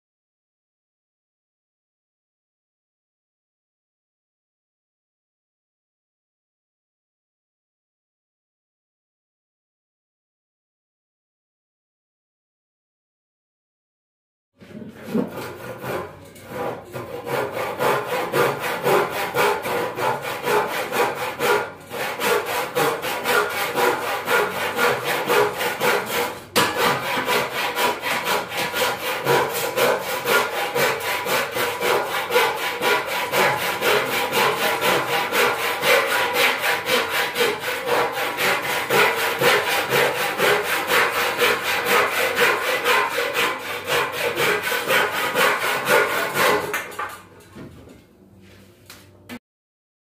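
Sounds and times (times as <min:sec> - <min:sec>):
handsaw cutting wood: 0:15.0 - 0:47.1.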